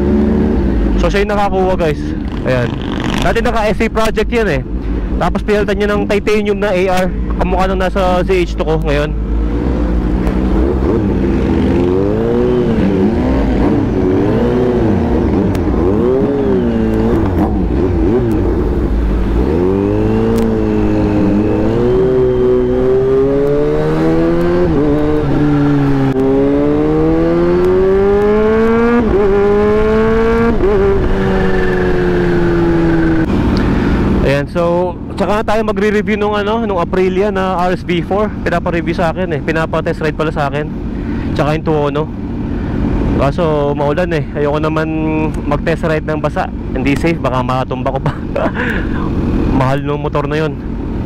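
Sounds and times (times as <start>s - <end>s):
motorcycle accelerating through gears: 0.0s - 3.5s, 9.1s - 34.3s
motorcycle engine revving: 0.0s - 3.9s, 7.2s - 34.4s.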